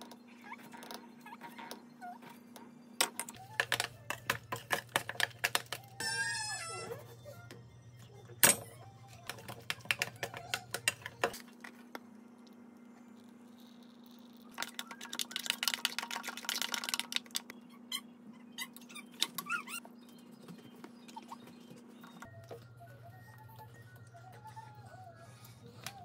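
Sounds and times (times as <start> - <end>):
faint steady hum: 0.0 - 19.1.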